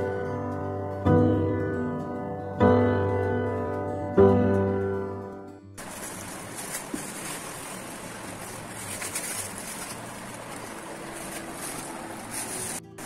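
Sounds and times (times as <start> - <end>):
piano music: 0.0 - 13.0
plastic wrapping rustling: 5.8 - 13.0.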